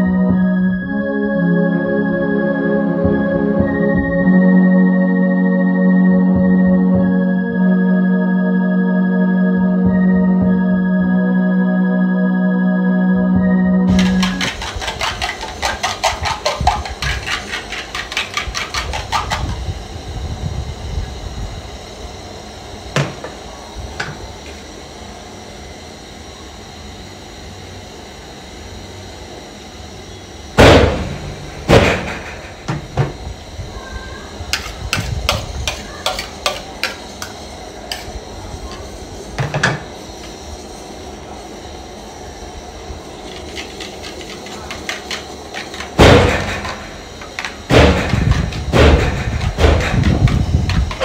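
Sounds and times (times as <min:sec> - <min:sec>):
metal spoon scraping bowl: 0:13.9 - 0:19.6, 0:34.6 - 0:38.1, 0:43.2 - 0:46.0.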